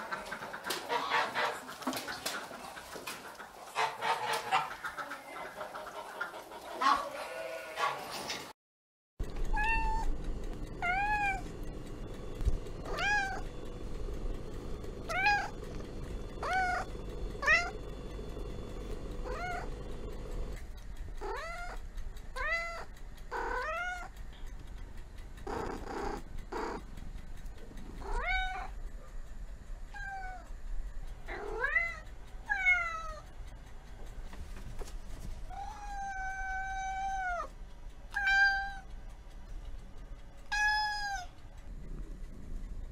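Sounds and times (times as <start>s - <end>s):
kitten meowing: 40.5s - 41.3s.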